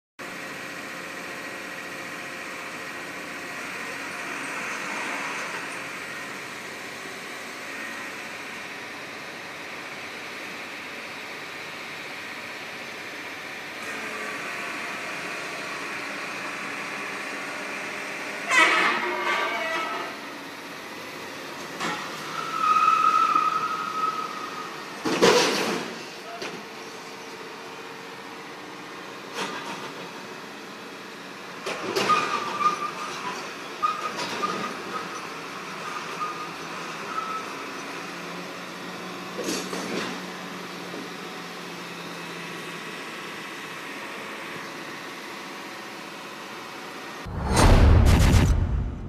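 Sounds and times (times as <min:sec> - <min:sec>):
steady mechanical drone: 0:47.3 - 0:49.0.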